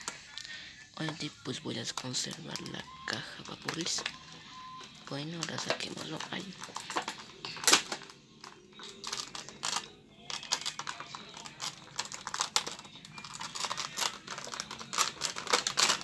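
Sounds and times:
plastic blister packaging crackling: 0.0s - 16.0s.

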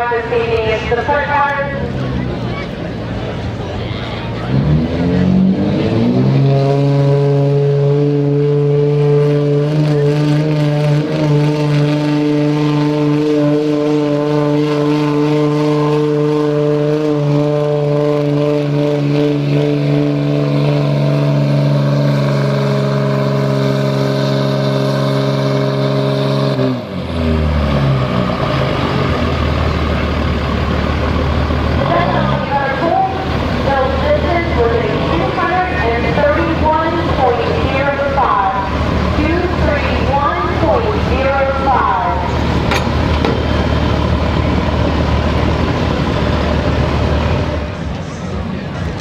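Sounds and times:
diesel truck engine revving: 0.0s - 49.0s.

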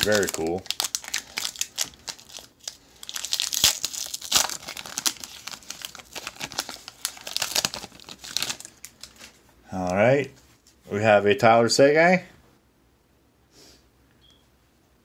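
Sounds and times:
foil wrapper crinkling and tearing: 0.0s - 9.4s.

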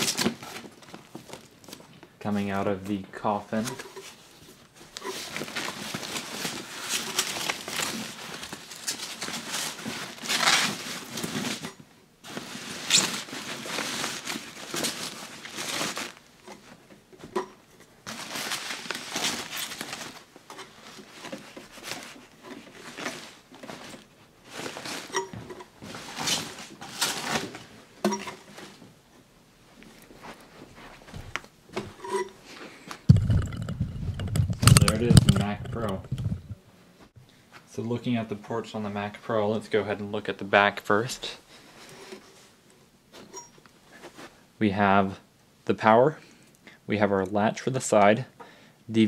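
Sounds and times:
packaging rustling and crinkling: 0.0s - 2.1s, 3.6s - 16.8s, 18.0s - 28.8s, 33.0s - 36.6s.

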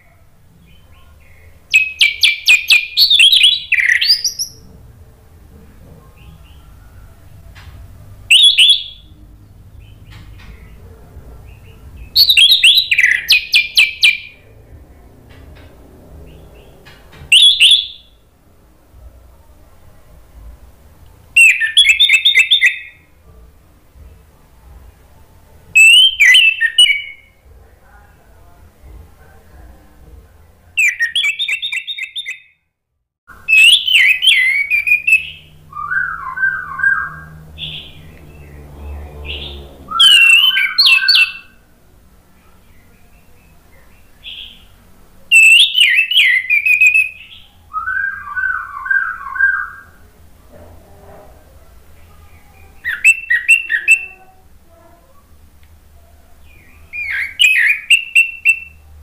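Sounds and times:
thrush singing warbling phrases: 33.5s - 41.6s.

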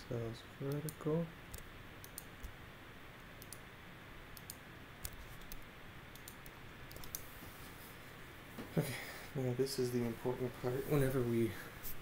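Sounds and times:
low steady hiss: 0.0s - 12.0s
computer mouse clicks: 0.7s - 2.6s, 3.3s - 3.6s, 4.4s - 7.3s.

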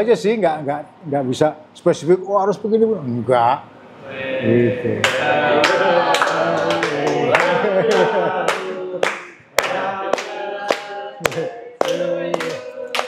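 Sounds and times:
group singing unaccompanied: 4.0s - 13.0s
hands clapping in time: 5.0s - 13.0s.

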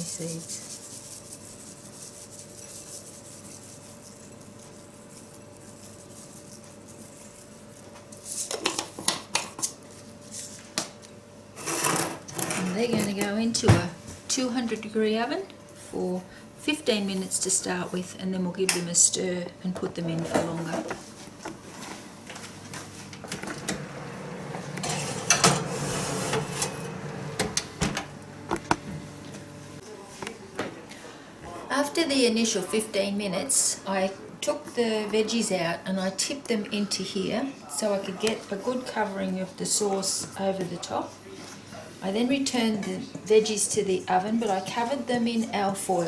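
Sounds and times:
faint steady hum: 12.8s - 46.0s
oven door shutting: 23.1s - 29.2s.

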